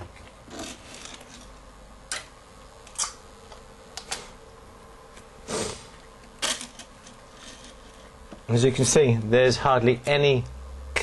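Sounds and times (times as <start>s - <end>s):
faint steady hum: 0.0s - 11.0s
rustling scrape: 6.6s - 8.1s.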